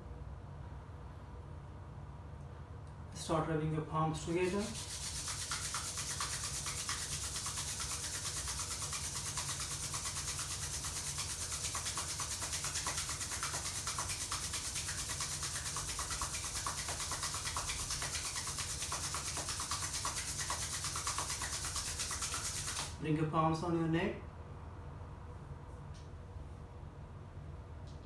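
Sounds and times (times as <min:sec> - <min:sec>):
palms rubbing together: 0:04.2 - 0:23.0.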